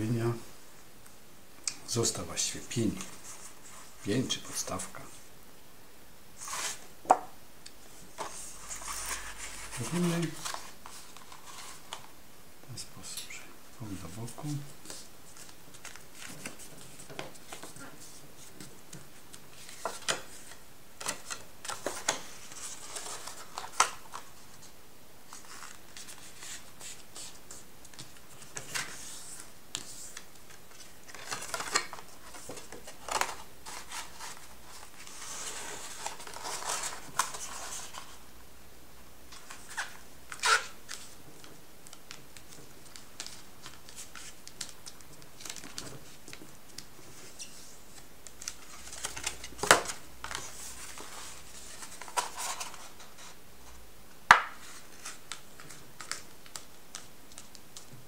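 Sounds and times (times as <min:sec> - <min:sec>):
paper rustling and crinkling: 0:08.1 - 0:12.1, 0:14.0 - 0:24.7, 0:25.3 - 0:38.2, 0:39.3 - 0:53.4, 0:54.5 - 0:57.9.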